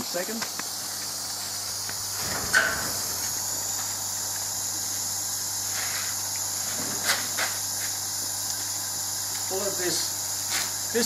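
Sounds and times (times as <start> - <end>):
steady high hiss: 0.0 - 11.0
metal shed door knocking: 2.3 - 3.2.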